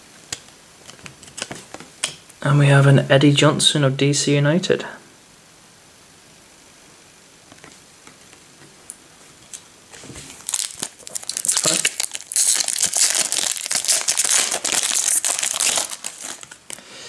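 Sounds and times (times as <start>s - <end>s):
foil wrapper crinkling: 10.0s - 16.8s.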